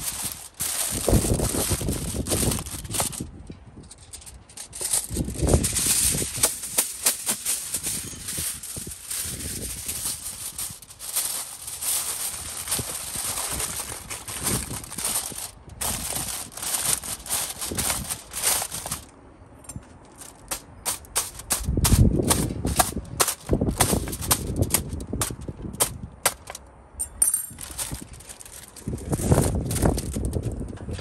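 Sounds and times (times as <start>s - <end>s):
fork punching holes in foil: 0.0s - 3.2s, 4.0s - 19.1s, 20.2s - 26.6s
aluminium foil crinkling: 0.0s - 19.1s, 20.0s - 26.6s, 27.5s - 30.7s.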